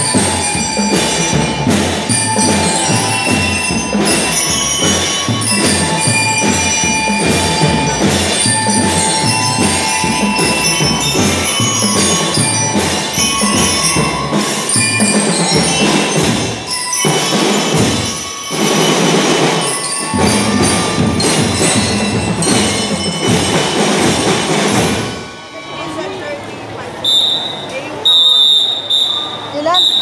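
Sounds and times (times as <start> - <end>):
marching drums: 0.0 - 25.7
bell lyres playing melody: 0.0 - 27.1.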